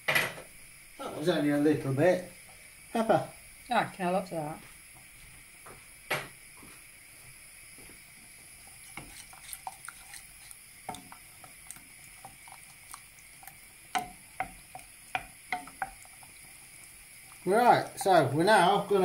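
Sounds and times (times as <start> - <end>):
wooden spoon stirring thick sauce: 8.4 - 19.0
spoon knocking against pan: 13.4 - 18.4.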